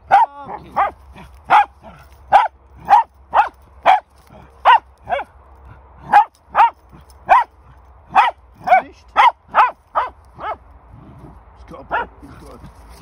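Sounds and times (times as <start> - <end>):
dog barking: 0.1 - 5.3, 6.0 - 10.6, 11.9 - 12.2.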